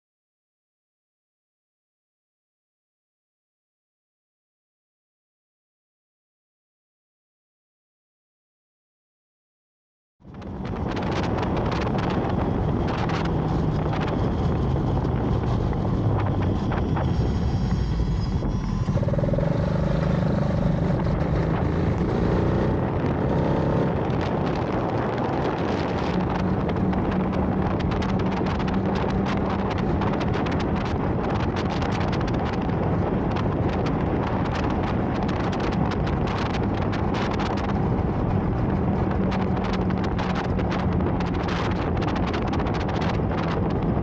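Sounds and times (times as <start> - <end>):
motorcycle engine hum: 10.2 - 44.0
wind buffeting microphone: 10.2 - 44.0.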